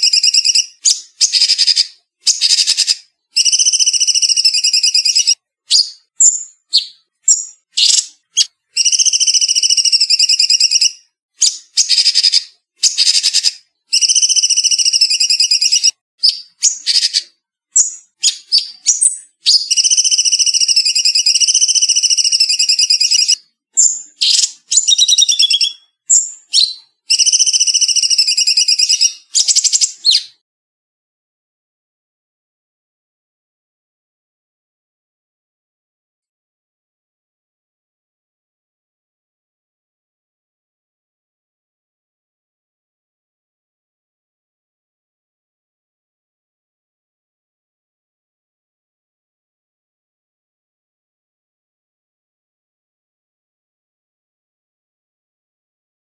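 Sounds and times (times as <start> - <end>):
bulbul singing trilling song: 0.0 - 30.4.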